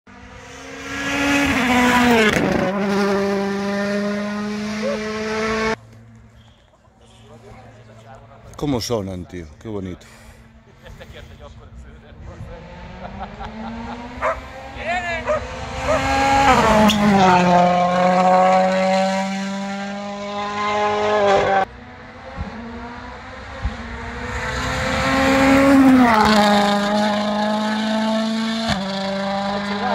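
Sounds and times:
rally car engine revving: 0:00.1 - 0:06.2, 0:10.4 - 0:29.9.

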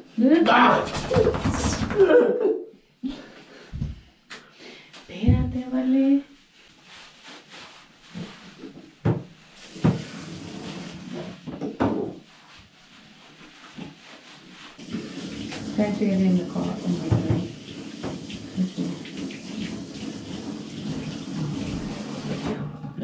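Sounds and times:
knocks against a bathtub: 0:00.7 - 0:02.2, 0:09.0 - 0:10.1, 0:11.5 - 0:12.2, 0:17.0 - 0:18.2
hands lathering wet fur: 0:00.8 - 0:02.3, 0:06.6 - 0:11.4, 0:12.2 - 0:22.6.

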